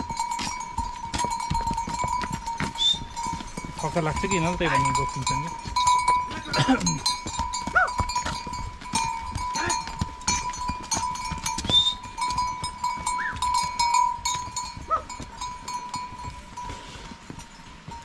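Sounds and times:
livestock bells clanking: 0:00.0 - 0:18.0
animal calls: 0:07.7 - 0:08.1.

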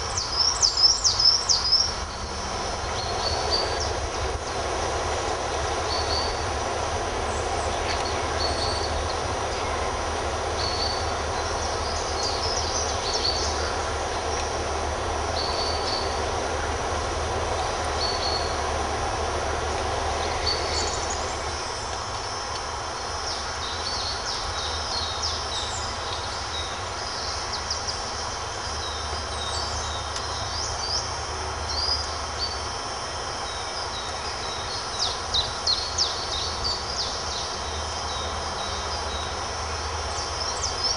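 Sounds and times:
songbirds chirping and singing: 0:00.0 - 0:32.7
low background rumble: 0:00.0 - 0:40.9.

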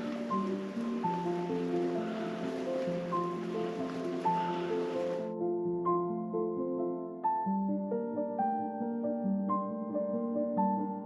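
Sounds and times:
steady rushing hiss: 0:00.0 - 0:05.3.

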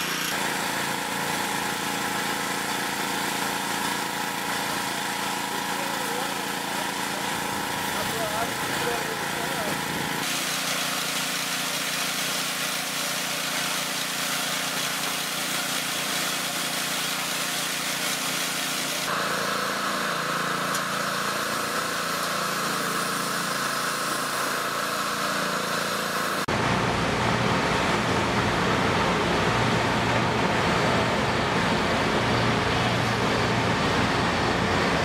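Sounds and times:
pressure washer jet hissing: 0:00.0 - 0:26.5
washer motor drone: 0:00.0 - 0:35.0.

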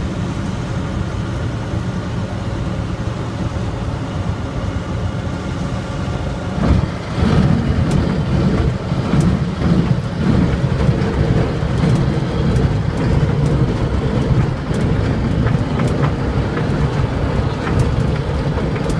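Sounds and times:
light aircraft engine: 0:00.0 - 0:18.9
wheels rumbling over turf: 0:00.0 - 0:18.9
rattles and clicks: 0:06.6 - 0:18.9.

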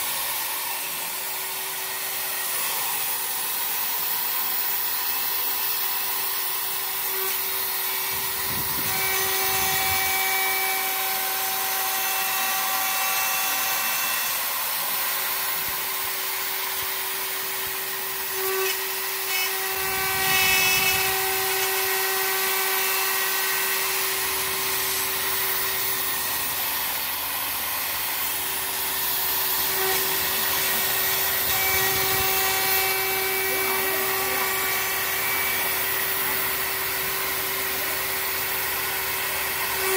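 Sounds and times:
router spindle whining: 0:00.0 - 0:39.9
higher metal cutting tone: 0:06.8 - 0:39.9.

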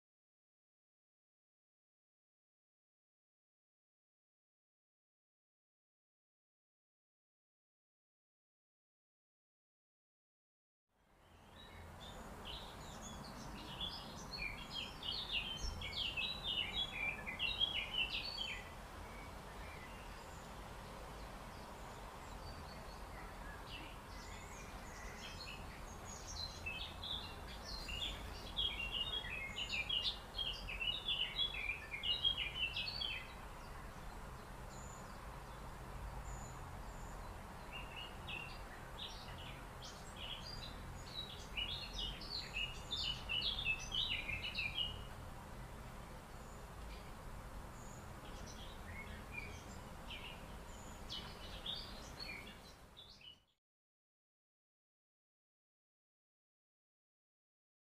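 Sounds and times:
faint outdoor hiss: 0:10.9 - 0:53.6
songbird twittering: 0:11.2 - 0:20.6, 0:21.2 - 0:35.6, 0:36.2 - 0:45.2, 0:47.8 - 0:53.5.

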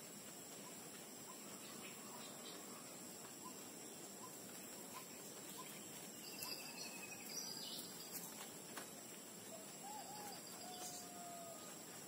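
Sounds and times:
bird chirps: 0:00.5 - 0:08.5, 0:09.5 - 0:11.8
whistled bird calls: 0:04.2 - 0:08.2, 0:09.5 - 0:11.7.

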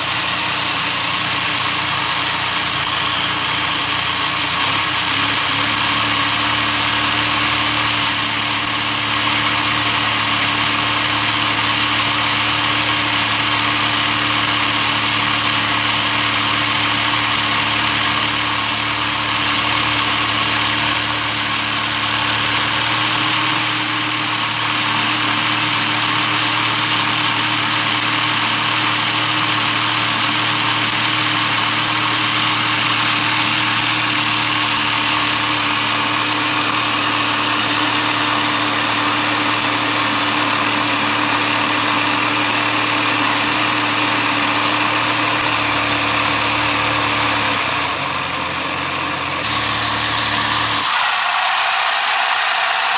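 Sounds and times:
toy motor mechanical whir: 0:49.4 - 0:52.9.

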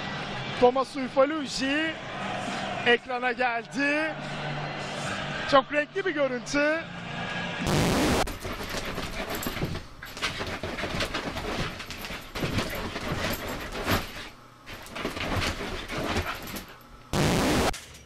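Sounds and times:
dog scrabbling on a quilt: 0:08.3 - 0:16.7.

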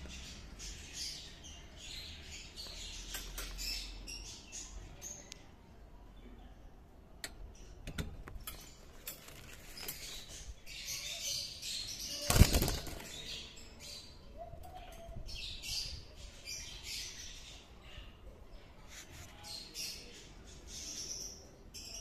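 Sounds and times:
budgerigars flapping wings: 0:12.3 - 0:13.1.

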